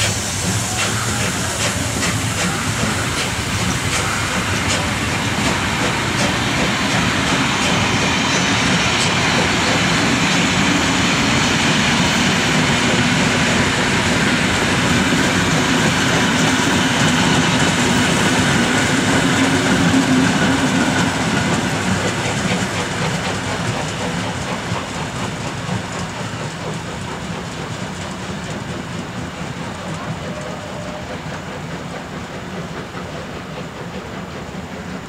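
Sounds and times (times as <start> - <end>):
train wheels clattering: 0.0 - 35.0.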